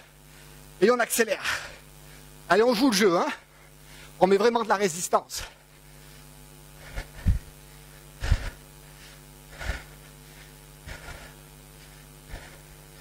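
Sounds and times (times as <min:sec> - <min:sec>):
man breathing out hard: 0:05.6 - 0:12.8.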